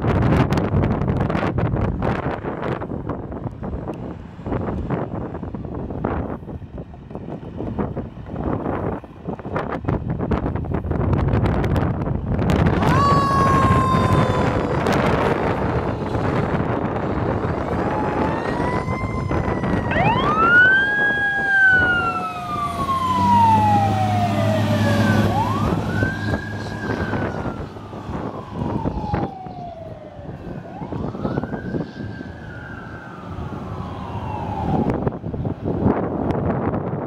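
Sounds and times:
wind buffeting microphone: 0.0s - 37.0s
mechanical siren wailing: 12.6s - 35.5s.

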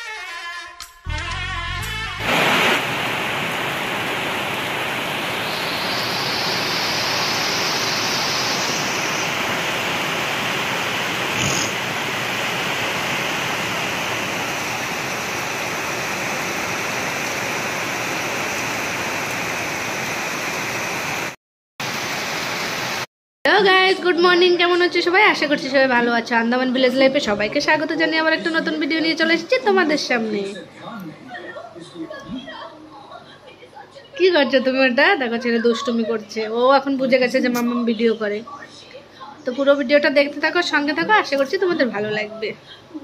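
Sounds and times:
heavy rain on leaves and road: 2.2s - 23.1s.

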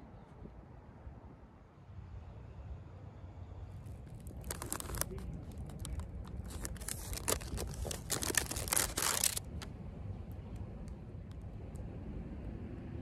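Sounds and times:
low steady rumble: 1.1s - 13.0s
paper and plastic crinkling: 3.9s - 9.7s.

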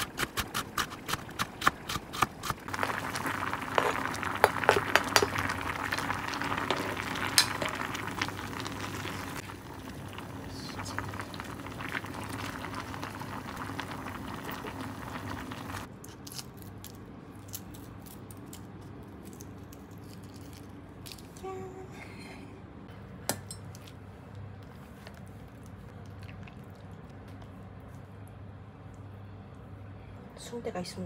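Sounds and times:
pan bubbling at a boil: 2.5s - 15.9s.

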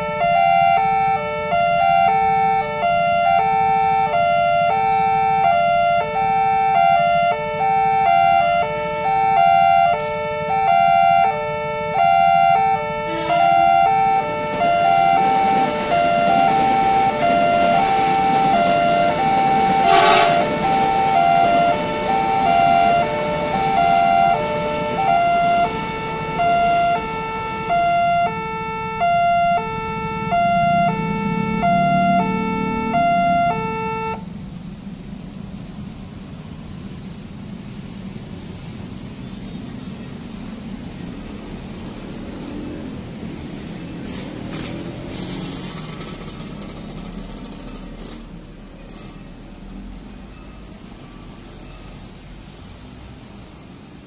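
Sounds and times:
two-tone electronic warning alarm: 0.0s - 34.3s
bus driving by: 0.0s - 54.0s
motorbike engines: 0.0s - 54.0s
train rumbling past: 0.0s - 54.0s
motorcycles driving by: 41.1s - 48.4s.

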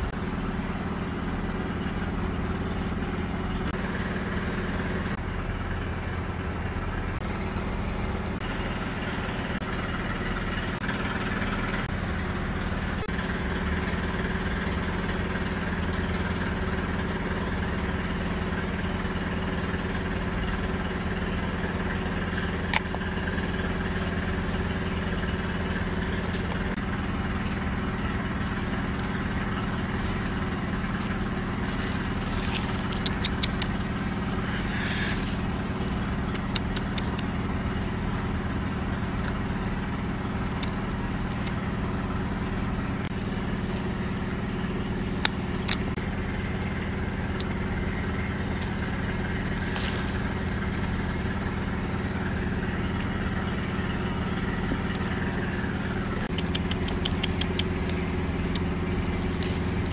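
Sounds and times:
low engine-like hum: 0.0s - 59.9s
faint clicks: 56.2s - 58.7s.

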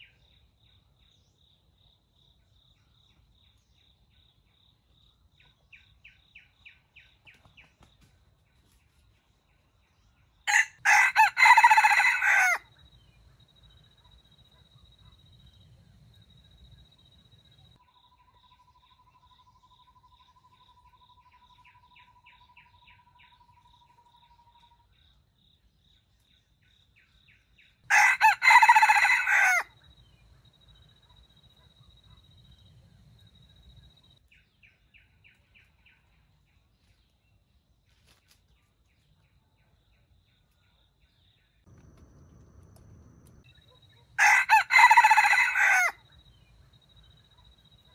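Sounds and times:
rooster crowing: 10.5s - 12.7s, 27.9s - 29.8s, 44.2s - 46.1s
bird chirps: 12.8s - 27.9s.

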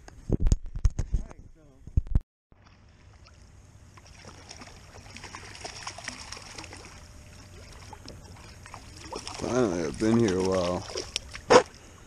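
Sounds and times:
small clicks and splashes: 2.6s - 11.5s
water lapping against kayak: 2.6s - 12.0s.

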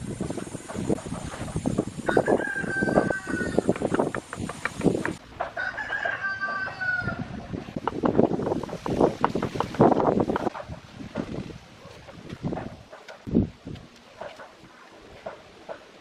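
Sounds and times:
rooster crowing: 2.0s - 3.7s, 5.5s - 7.4s.

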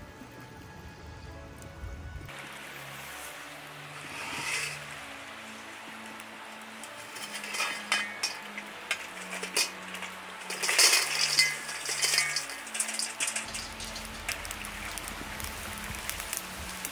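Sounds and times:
charcoal tumbling out rattling: 2.3s - 16.9s
metal chimney starter clanking: 4.0s - 16.9s.

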